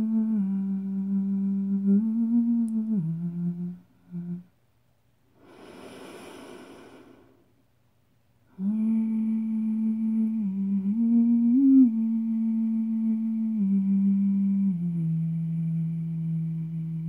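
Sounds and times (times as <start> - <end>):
woman humming: 0.0 - 4.5, 5.4 - 7.4, 8.5 - 17.0
soft breathy rush: 5.3 - 7.6.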